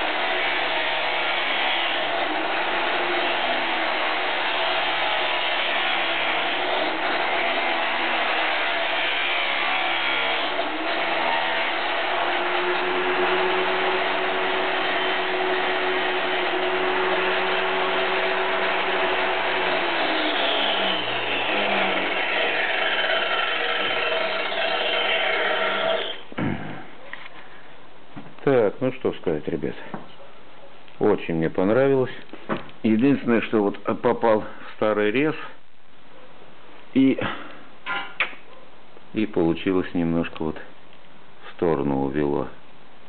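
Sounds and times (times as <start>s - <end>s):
angle grinder cutting steel: 0.0s - 26.2s.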